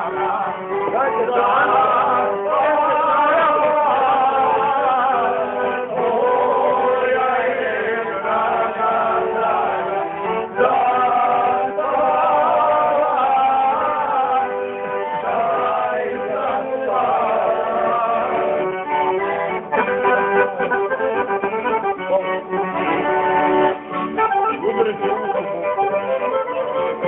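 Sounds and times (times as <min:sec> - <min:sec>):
men singing: 0:00.0 - 0:18.8.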